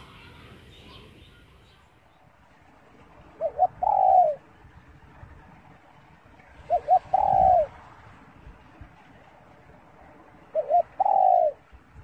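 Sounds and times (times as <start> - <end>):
dove cooing: 3.3 - 4.4, 6.6 - 7.8, 10.5 - 11.7.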